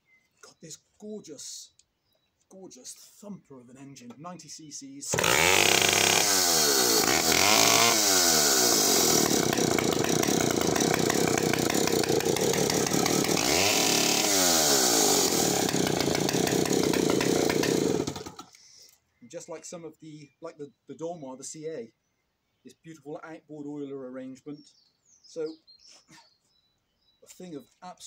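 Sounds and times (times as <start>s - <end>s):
chainsaw engine at high revs: 5.1s - 18.6s.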